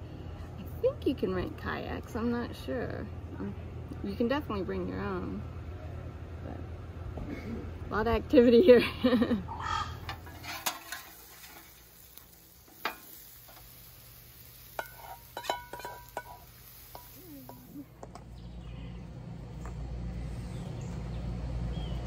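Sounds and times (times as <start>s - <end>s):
low outdoor rumble: 0.0s - 22.0s
metal utensils clinking: 10.1s - 11.8s, 14.8s - 17.7s
food sizzling on a griddle: 10.2s - 17.9s.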